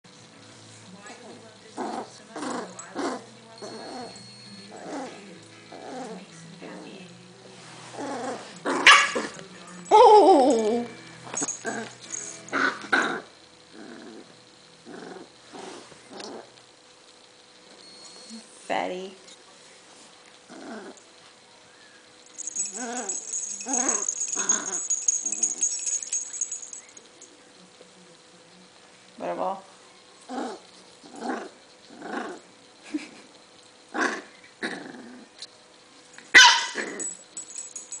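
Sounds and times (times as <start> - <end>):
dog growling: 1.2 - 7.0, 7.9 - 10.9, 11.5 - 11.9, 12.6 - 16.5, 20.5 - 21.0, 22.4 - 26.7, 30.3 - 32.5, 33.9 - 35.4.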